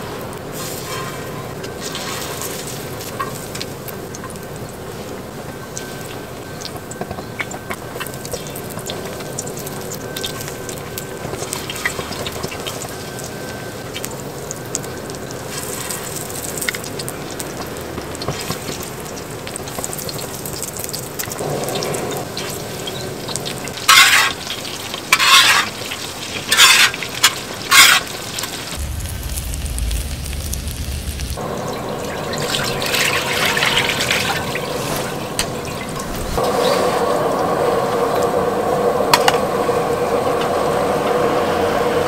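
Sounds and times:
pancakes sizzling on a griddle: 0.0 - 31.6.

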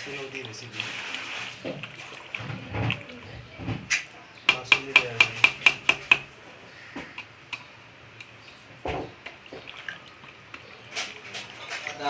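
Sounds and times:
soft squelching stirring: 0.0 - 12.0
spatula clicking against pot: 4.5 - 6.3.

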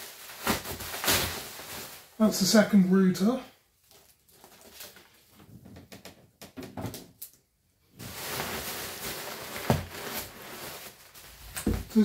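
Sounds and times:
bubble wrap crinkling: 0.0 - 2.6, 3.7 - 5.4, 8.0 - 12.0.

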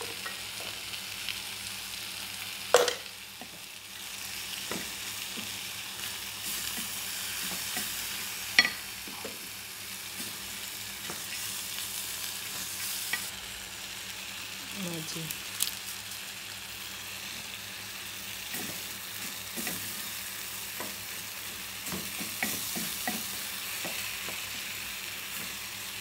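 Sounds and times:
lentils sizzling in oil: 0.0 - 26.0
spoon knocking on pot: 2.8 - 3.1.

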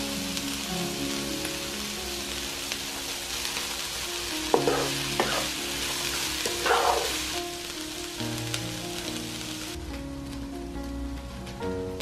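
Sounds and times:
food sizzling in a frying pan: 0.0 - 12.0
wooden spatula stirring: 4.5 - 7.3.

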